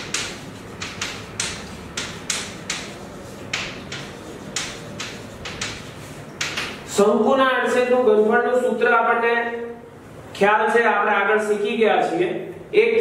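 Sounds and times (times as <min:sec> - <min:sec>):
chalk writing on blackboard: 0:00.0 - 0:06.9.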